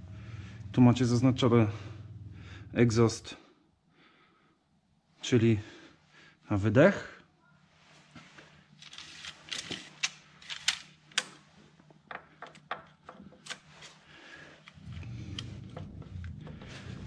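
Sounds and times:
low steady rumble: 0.0s - 3.8s, 14.6s - 17.0s.

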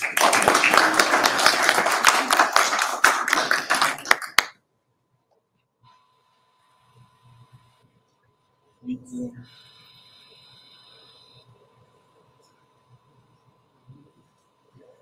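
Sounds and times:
applause: 0.0s - 4.6s.

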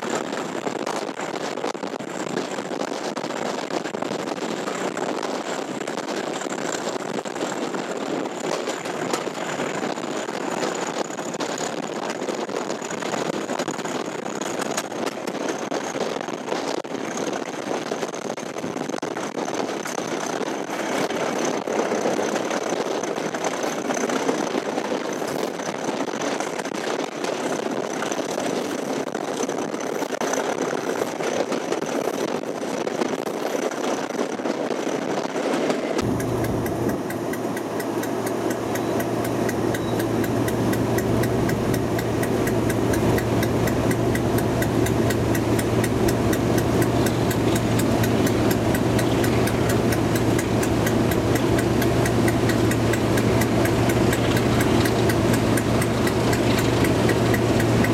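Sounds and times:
diesel locomotive engine: 19.2s - 57.9s.

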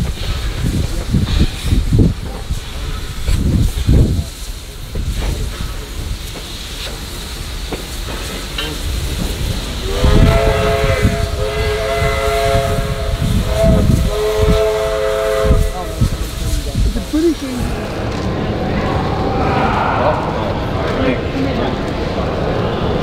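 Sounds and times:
low locomotive rumble: 0.0s - 23.0s
steam hissing: 0.0s - 23.0s
steam whistle chord: 9.9s - 15.8s.

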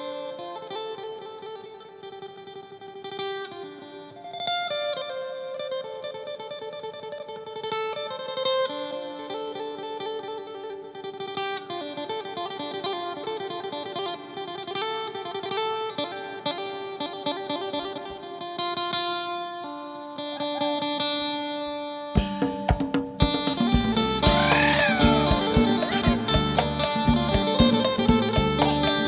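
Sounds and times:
plucked lute busy melody: 22.2s - 29.0s
folk ensemble music: 23.2s - 29.0s.

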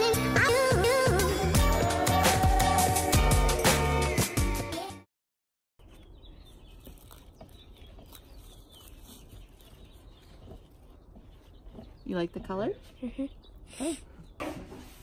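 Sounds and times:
background music: 0.0s - 5.1s
birds chirping: 5.8s - 15.0s.

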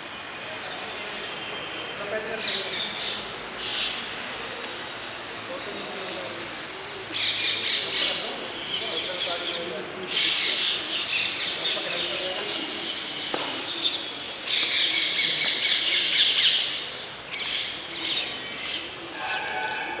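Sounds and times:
birds squawking and chirping: 2.4s - 4.2s, 6.4s - 20.0s.

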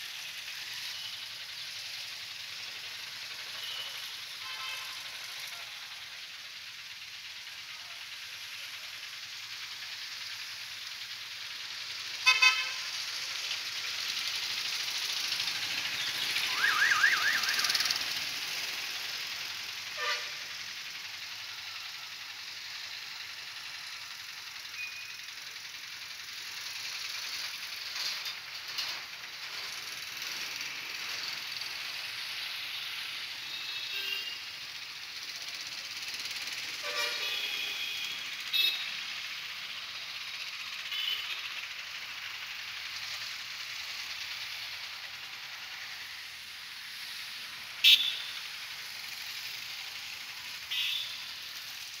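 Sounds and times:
street traffic hiss: 0.0s - 52.0s
short high car horn toots: 36.8s - 38.9s, 47.8s - 48.3s, 50.7s - 51.2s.

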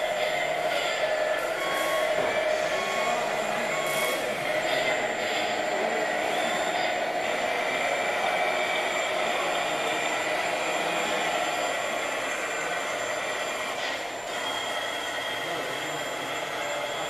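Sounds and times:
thin high whine: 0.0s - 17.0s
toy excavator whirring: 0.0s - 17.0s.

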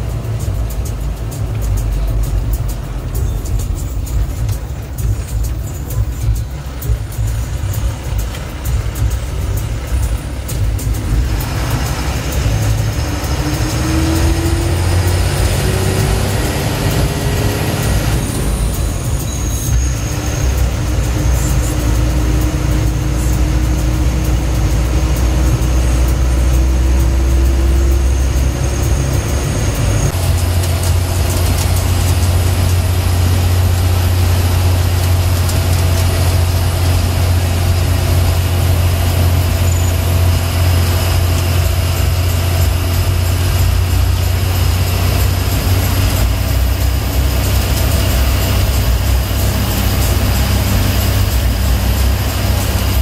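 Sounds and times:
bus diesel engine drone: 0.0s - 53.0s
thin whine rising in pitch: 10.8s - 53.0s.

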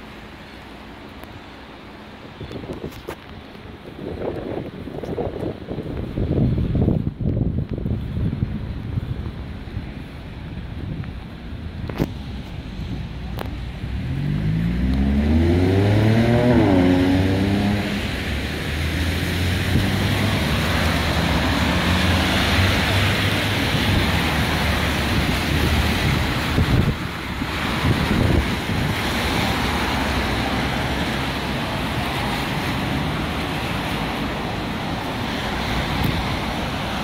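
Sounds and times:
rain: 0.0s - 37.0s
traffic noise: 0.0s - 37.0s
tyres hissing on wet street: 0.0s - 37.0s
vehicle engine accelerating: 12.7s - 37.0s.

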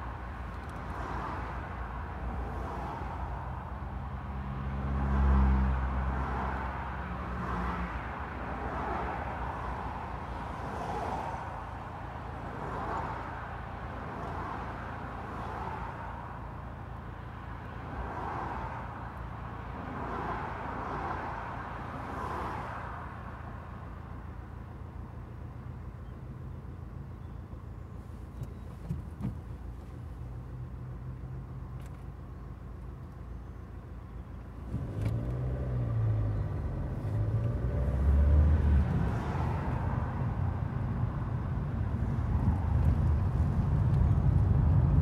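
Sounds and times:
traffic passing: 0.0s - 45.0s.

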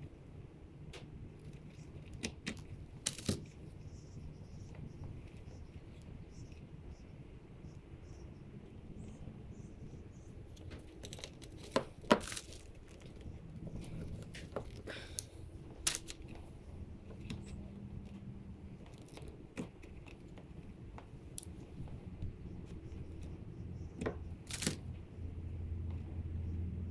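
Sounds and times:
rustling and handling: 1.3s - 7.2s, 9.0s - 25.2s
hand tools clicking and snapping: 2.0s - 3.5s, 14.2s - 16.4s, 24.5s - 24.8s.

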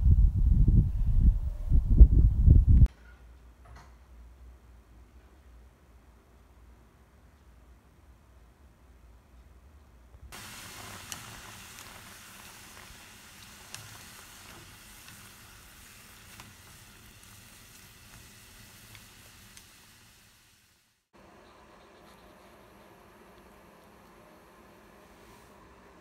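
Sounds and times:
food sizzling in a pan: 10.3s - 21.1s.

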